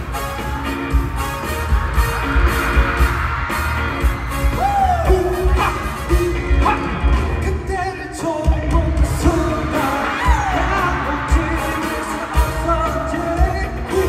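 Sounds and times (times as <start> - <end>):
live band with kick drum beat: 0.0 - 14.0
man singing pop vocals: 4.6 - 14.0.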